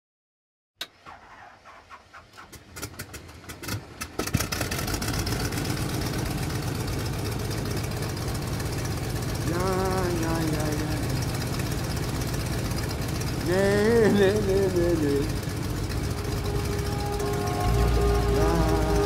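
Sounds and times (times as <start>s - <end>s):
dense pulsing electronic texture: 5.2s - 19.0s
deep rumble: 9.5s - 19.0s.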